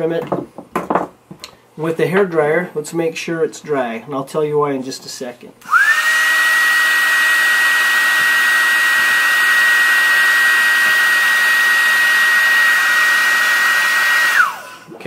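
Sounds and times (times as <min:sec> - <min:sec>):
hair dryer running: 0:05.6 - 0:14.9.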